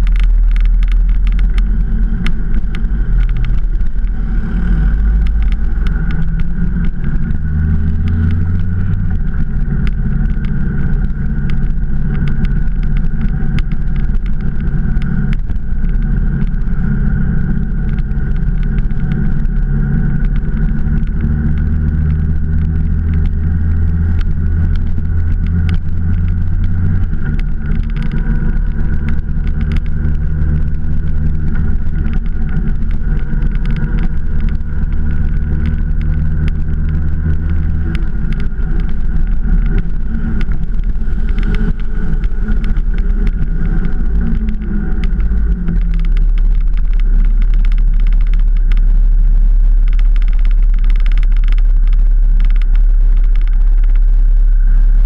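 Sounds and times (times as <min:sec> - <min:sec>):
motorcycle engine running: 0:00.0 - 0:55.0
road and wind noise: 0:00.0 - 0:55.0.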